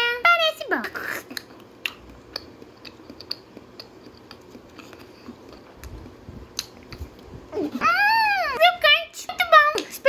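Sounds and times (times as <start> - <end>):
crunchy food being chewed: 1.0 - 7.8.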